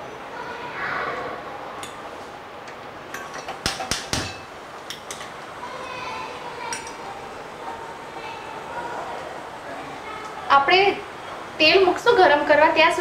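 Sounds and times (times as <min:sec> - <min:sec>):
pan and utensils clinking: 0:02.7 - 0:05.4, 0:06.7 - 0:07.1.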